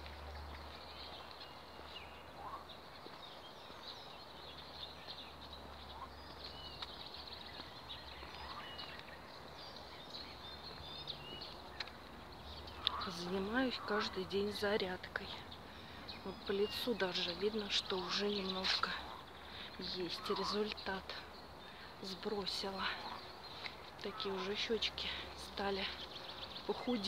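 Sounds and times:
small birds chirping: 0.0s - 27.0s.

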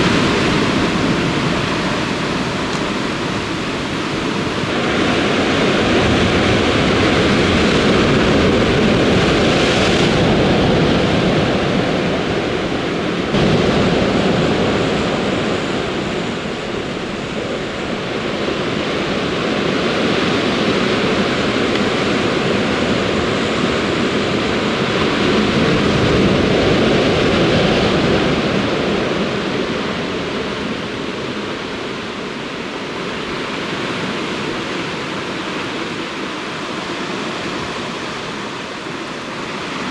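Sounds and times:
surf breaking on rocks: 13.1s - 29.4s.

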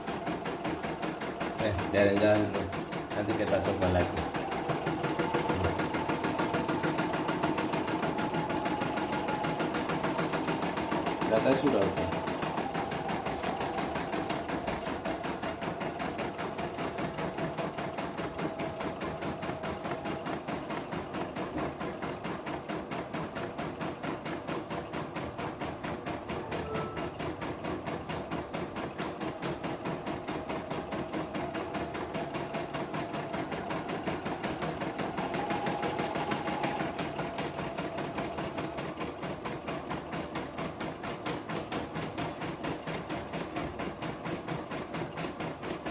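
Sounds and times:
motor hum: 0.0s - 21.6s.

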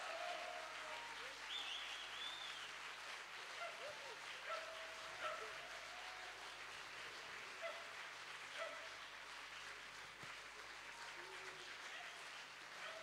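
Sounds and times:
cheering voices: 0.0s - 6.8s
audience applauding: 0.0s - 13.0s.

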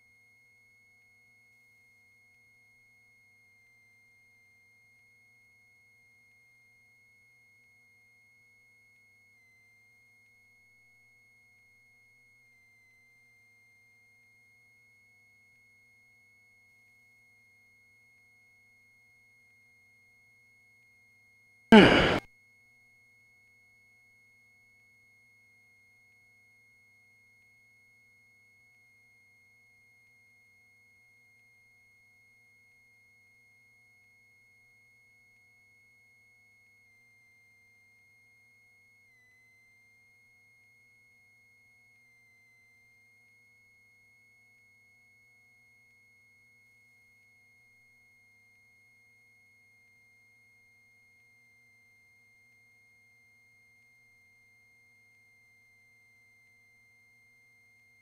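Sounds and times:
loud burst falling in pitch: 21.7s - 22.2s.

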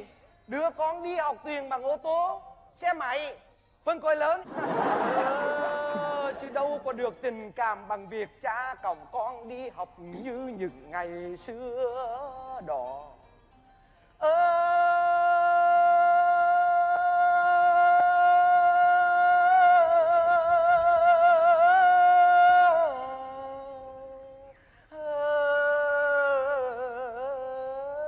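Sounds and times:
person singing long notes: 5.1s - 6.8s, 14.2s - 28.0s.

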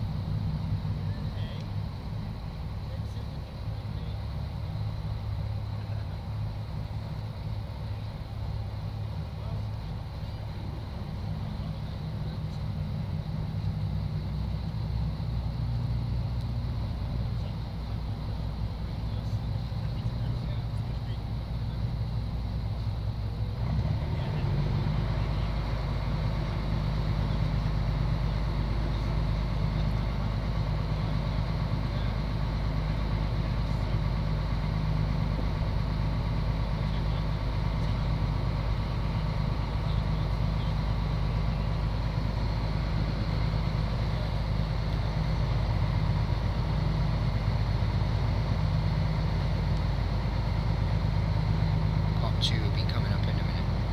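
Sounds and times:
boat engine droning: 0.0s - 53.9s.

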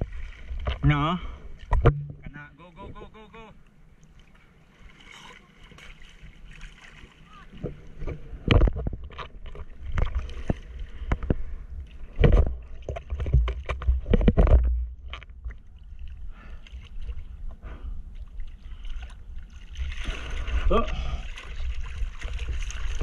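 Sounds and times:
low rumble of water: 0.0s - 23.0s
water splashing against surfboard: 4.1s - 17.2s, 18.4s - 23.0s.

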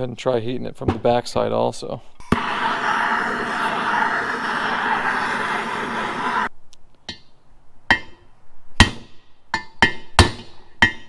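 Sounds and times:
propane torch hissing: 2.2s - 6.5s.

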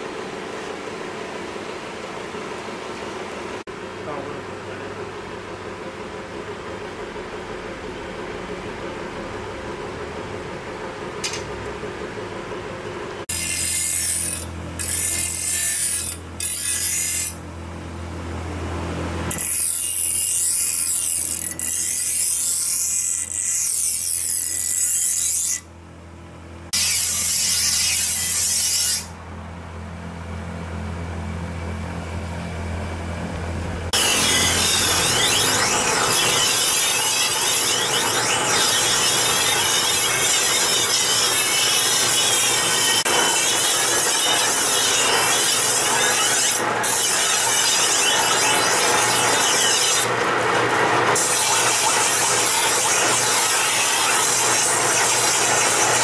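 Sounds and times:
grinding machine motor hum: 0.0s - 56.0s
blade on wet grinding wheel: 13.2s - 17.4s, 19.1s - 25.7s, 26.7s - 29.2s, 33.8s - 56.0s
blade scraping: 13.3s - 17.4s, 19.3s - 25.7s, 26.8s - 29.2s, 33.9s - 56.0s.

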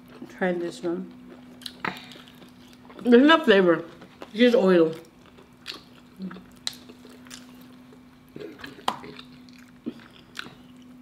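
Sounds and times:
faint steady low hum: 0.0s - 11.0s
chewing with wet mouth clicks: 1.1s - 3.1s, 3.9s - 10.9s.

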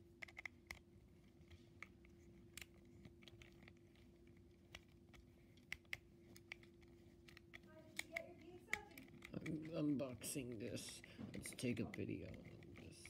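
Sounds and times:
faint steady hum: 0.0s - 13.0s
plastic toy clicks: 4.7s - 13.0s.

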